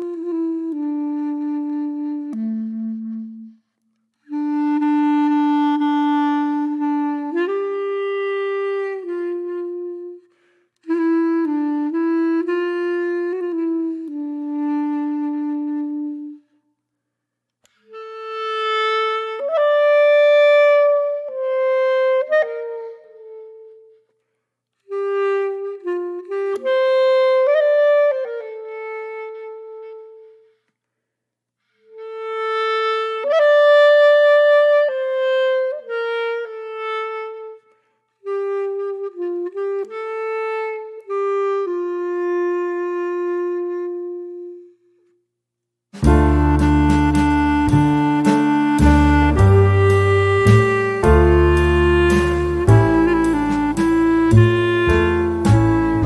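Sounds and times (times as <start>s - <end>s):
slow wind instrument melody: 0.0s - 16.6s, 17.6s - 24.2s, 24.8s - 30.7s, 31.7s - 45.2s, 46.0s - 56.0s.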